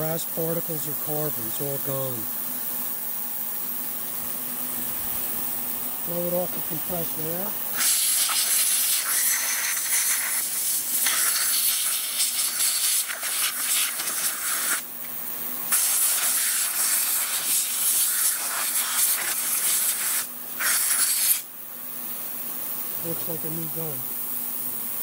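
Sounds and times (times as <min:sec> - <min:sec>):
compressed air blow gun hissing: 0:03.7 - 0:21.5.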